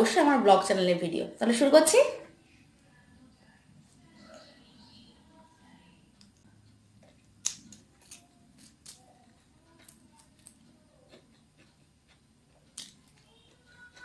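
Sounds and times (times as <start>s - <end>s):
person chewing noodles: 6.6s - 14.0s.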